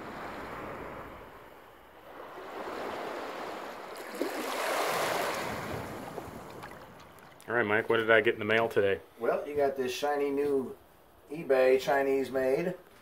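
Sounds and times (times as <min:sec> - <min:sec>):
small waves washing onto shore: 0:00.0 - 0:07.5.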